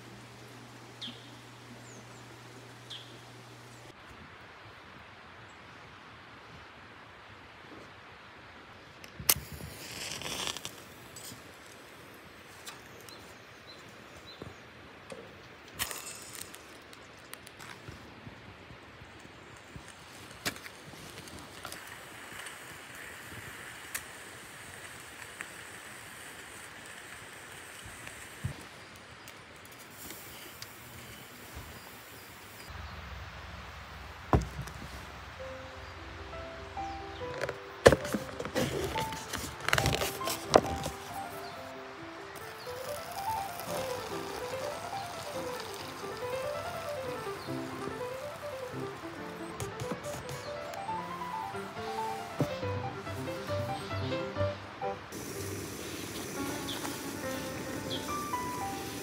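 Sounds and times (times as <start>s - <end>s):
faint outdoor hiss: 0.0s - 59.0s
rustling: 37.2s - 54.0s.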